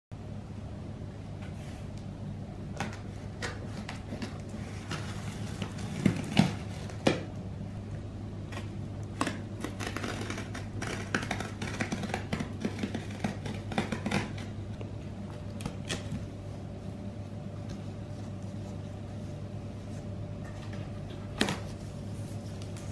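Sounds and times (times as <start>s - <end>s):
steady low hum: 0.1s - 22.9s
knife scraping packing tape: 9.2s - 14.5s.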